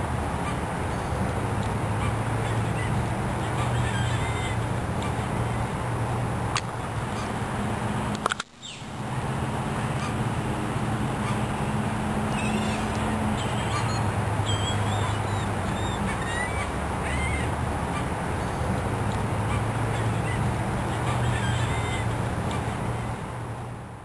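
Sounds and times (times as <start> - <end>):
steady low hum: 0.0 - 24.0
birds honking and calling: 0.4 - 5.8, 9.7 - 23.3.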